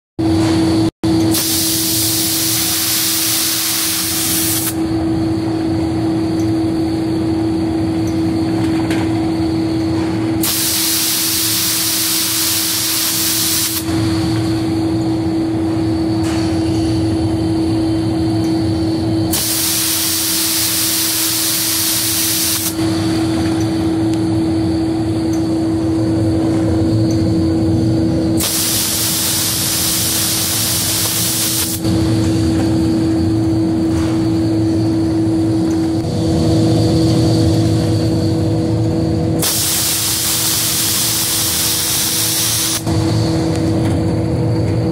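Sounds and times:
machinery humming: 0.2 - 44.9
spray guns hissing: 1.4 - 4.8, 10.4 - 13.8, 19.3 - 22.8, 28.4 - 31.8, 39.4 - 42.8.

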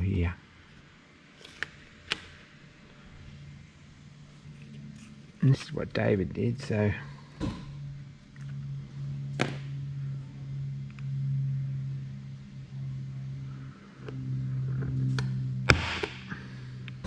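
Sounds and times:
low mechanical hum: 0.0 - 17.0
sharp snap: 15.2 - 16.4.

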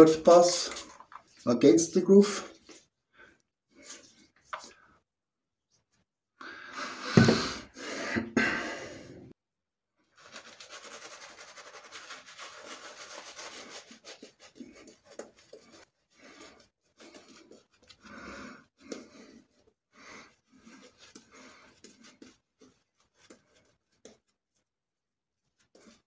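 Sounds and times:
shaving brush swishing on face: 10.2 - 18.0
hands rubbing face: 10.2 - 24.3.

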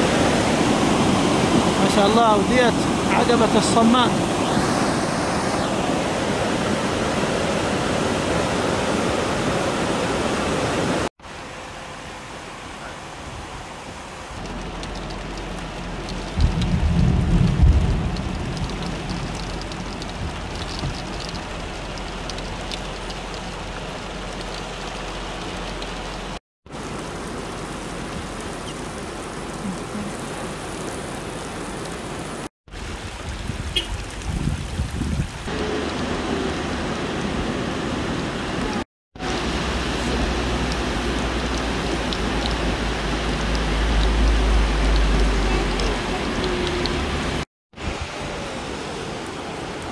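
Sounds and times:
floodwater rushing over rocks: 0.0 - 49.9
heavy rain: 0.0 - 49.9.

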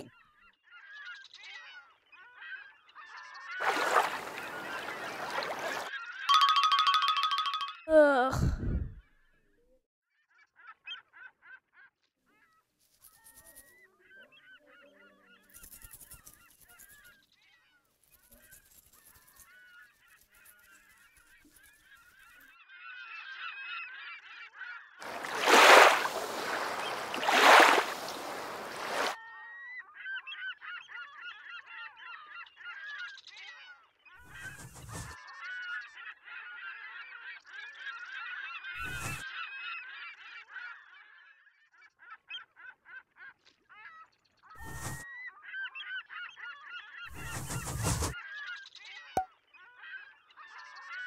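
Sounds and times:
birds honking and calling: 3.6 - 7.6, 24.8 - 29.2, 37.8 - 40.0.

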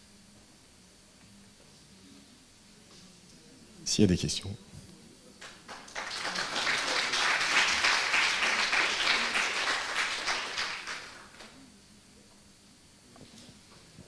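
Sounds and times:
audience applauding: 5.4 - 11.6.

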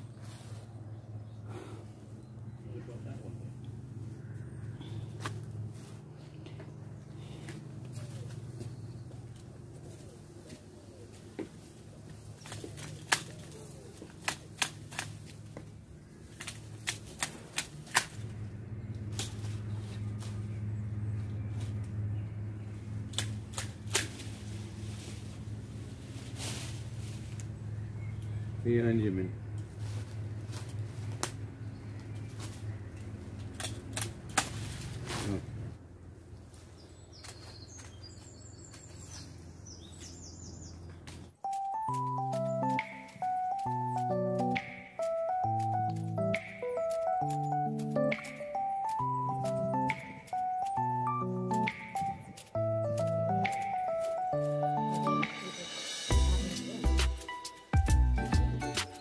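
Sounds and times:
small birds chirping: 0.0 - 14.6, 27.2 - 33.9, 36.2 - 59.0
steady low hum: 0.0 - 37.1
pruning shears snipping: 12.3 - 20.6, 23.0 - 24.8, 30.5 - 35.4, 41.0 - 59.0.

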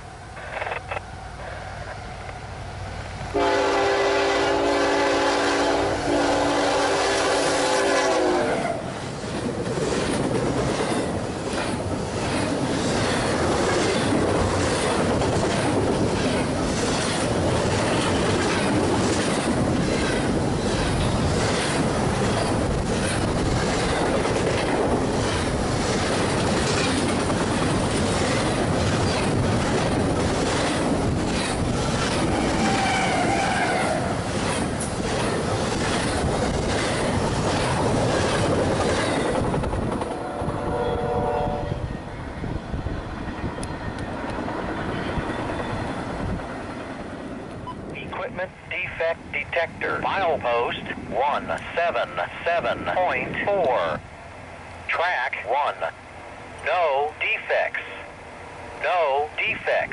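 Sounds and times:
diesel locomotive passing: 0.0 - 59.9
freight train rolling rumble: 0.0 - 59.9
train wheels clicking over rail joints: 9.0 - 40.2.

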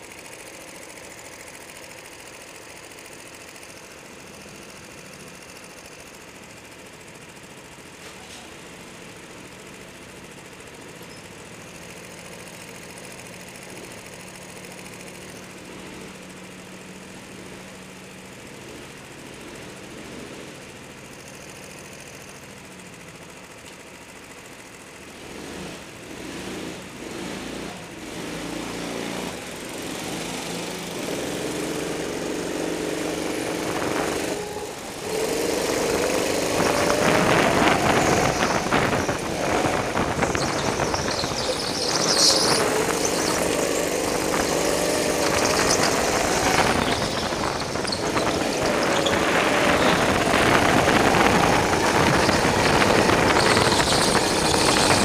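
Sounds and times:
go-kart engine revving: 0.0 - 22.2, 22.8 - 55.0.

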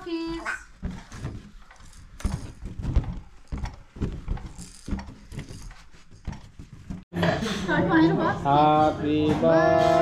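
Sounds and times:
soft thuds and knocks: 0.8 - 7.0.

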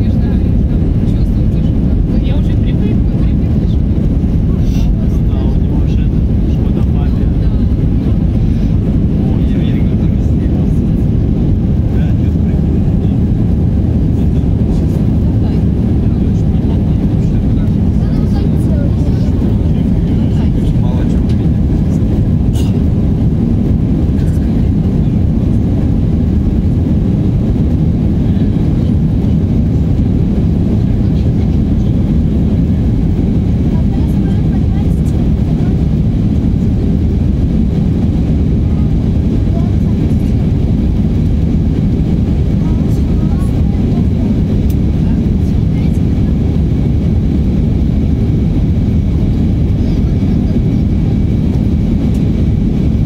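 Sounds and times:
airplane cabin engine rumble: 0.0 - 53.0
rushing air: 0.0 - 53.0.

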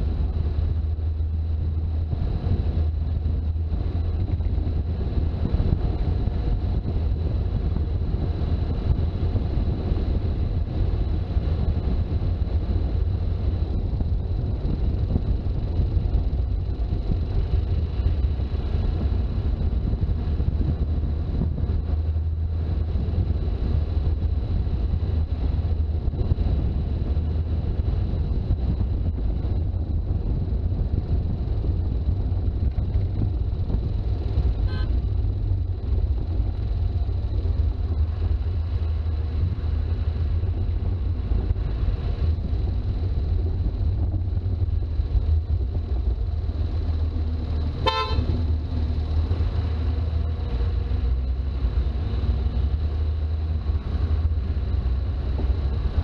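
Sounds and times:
diesel engine and road drone: 0.0 - 56.0.

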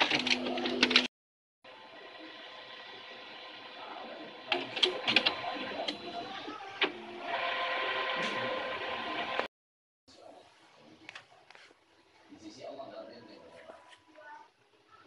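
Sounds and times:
printer clicks and clunks: 0.0 - 1.1, 4.4 - 9.5
printer motors whirring: 0.0 - 1.1, 1.7 - 9.5.

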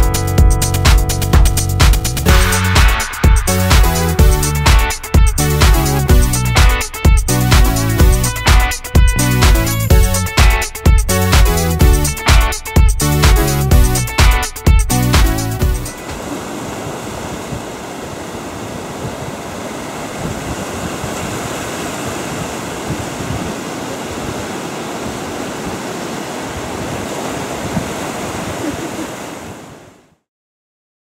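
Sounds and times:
surf breaking over rocks: 15.9 - 30.0.

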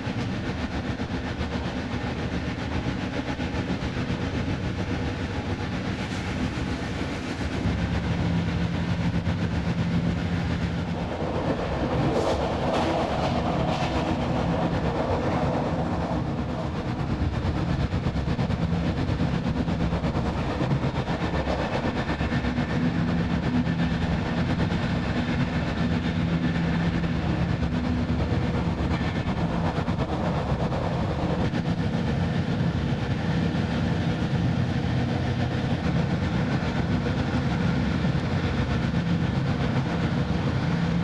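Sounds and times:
train wheels rumbling on rails: 0.0 - 41.0
sharp rail clacks: 0.1 - 32.4.

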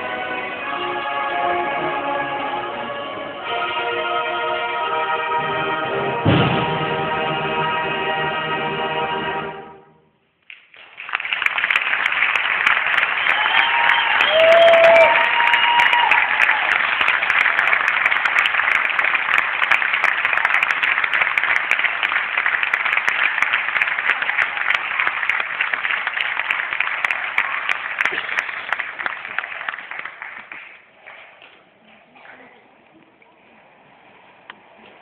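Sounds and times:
audience applauding: 10.4 - 32.4
people cheering: 11.0 - 30.6.

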